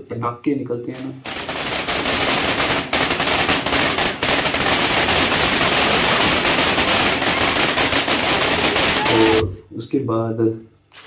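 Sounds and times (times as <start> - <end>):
firework crackling pops: 1.0 - 9.4
fountain firework hissing: 1.2 - 9.4.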